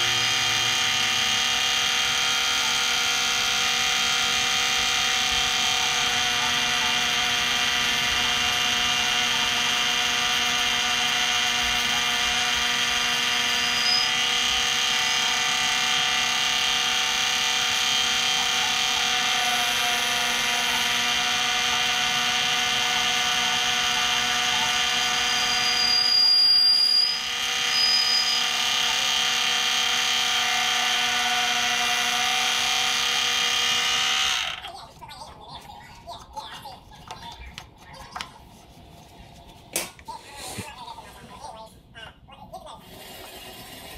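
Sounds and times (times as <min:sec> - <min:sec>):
mini lathe motor whining: 0:00.0 - 0:34.6.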